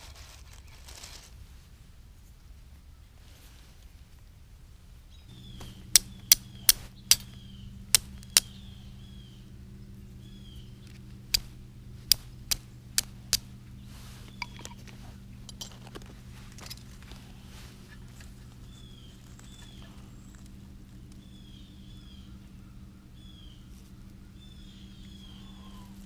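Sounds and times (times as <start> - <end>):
fire steel striking: 5.3 - 18.0.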